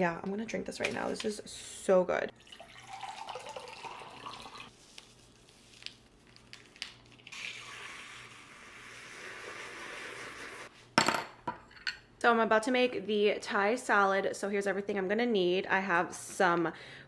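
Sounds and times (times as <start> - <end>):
water pouring into a glass: 2.4 - 4.7.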